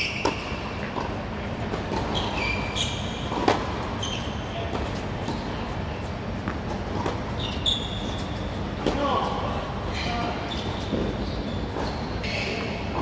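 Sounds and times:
sneakers squeaking on court: 0:00.0 - 0:09.1, 0:09.9 - 0:13.0
low hall background noise: 0:00.0 - 0:13.0
tennis ball bounces: 0:03.2 - 0:03.8
racket hitting tennis ball: 0:03.2 - 0:03.9.

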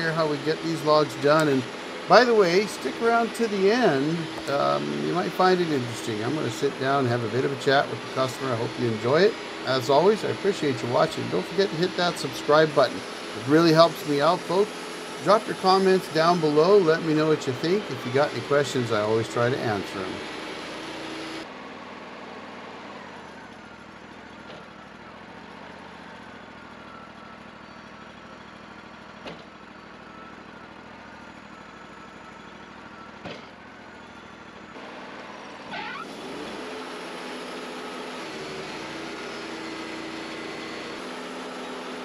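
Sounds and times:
bandsaw mill cutting log: 0:00.0 - 0:21.5, 0:32.1 - 0:42.0.

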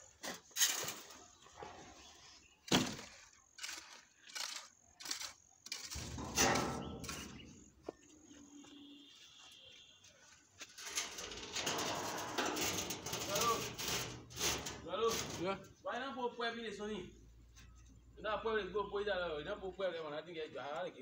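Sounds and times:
trowel scraping wet concrete: 0:03.2 - 0:07.6, 0:10.8 - 0:15.8.

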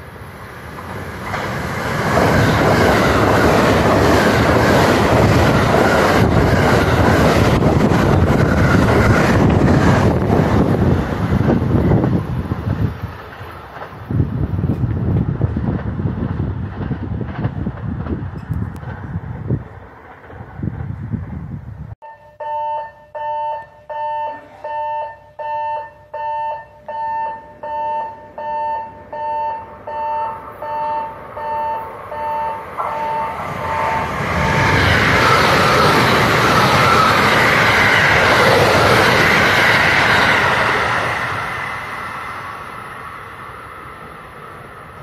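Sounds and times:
train passing at speed: 0:00.0 - 0:22.0, 0:24.3 - 0:45.0
railway warning bell ringing: 0:22.0 - 0:38.2.

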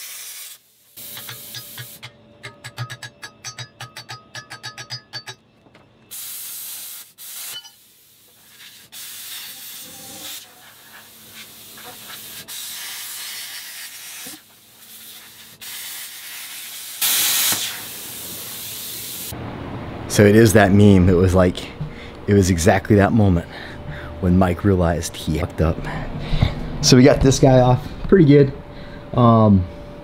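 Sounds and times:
plasma cutter hissing: 0:00.0 - 0:02.1, 0:06.1 - 0:19.3.

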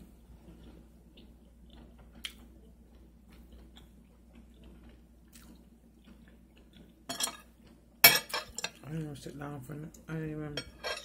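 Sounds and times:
faint chewing of food: 0:00.0 - 0:08.0.

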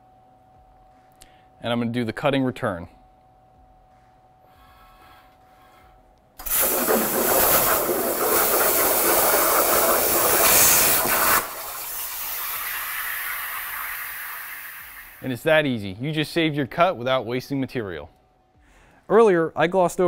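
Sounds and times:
plasma cutter arc hissing: 0:06.4 - 0:15.2
steady quiet hiss: 0:10.4 - 0:20.0.

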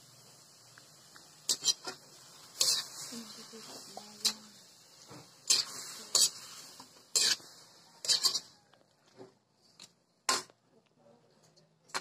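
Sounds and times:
metal spatula clanking on wok: 0:05.4 - 0:06.4, 0:07.1 - 0:07.4, 0:08.0 - 0:08.6.

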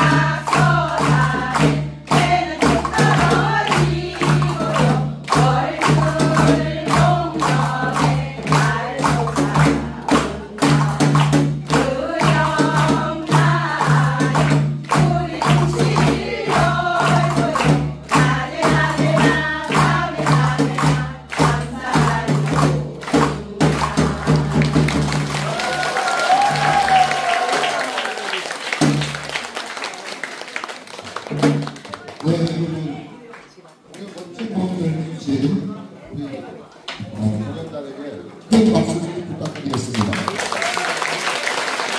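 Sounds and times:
hands beating clay jars: 0:00.0 - 0:25.5
women singing together: 0:00.0 - 0:25.8.

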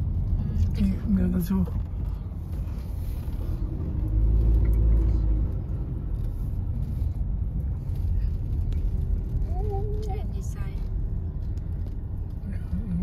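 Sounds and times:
car driving slowly: 0:00.0 - 0:13.0.

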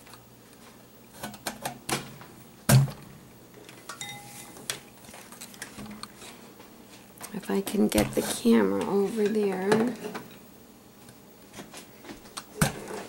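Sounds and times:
light metallic ring: 0:04.0 - 0:04.5.

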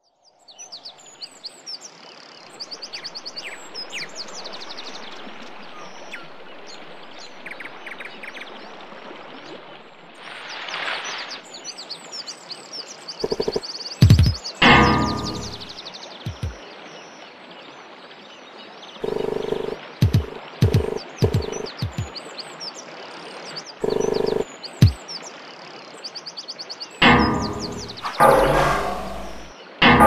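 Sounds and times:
small birds chirping: 0:13.0 - 0:16.6, 0:19.1 - 0:22.3
deep musical beats: 0:13.3 - 0:15.7, 0:16.3 - 0:16.6, 0:19.0 - 0:22.1, 0:23.8 - 0:25.0, 0:27.0 - 0:30.0.

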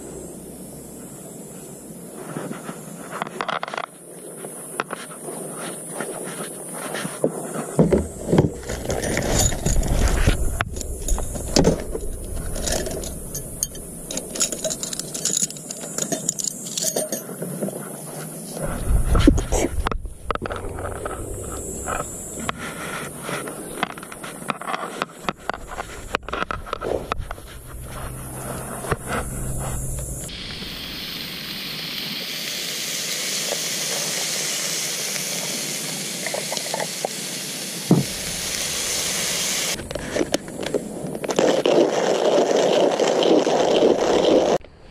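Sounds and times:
steady high hiss: 0:00.0 - 0:43.0
plastic cooler box rattling: 0:07.8 - 0:16.5
steak sizzling: 0:08.1 - 0:16.7, 0:18.6 - 0:24.5, 0:25.2 - 0:39.8.

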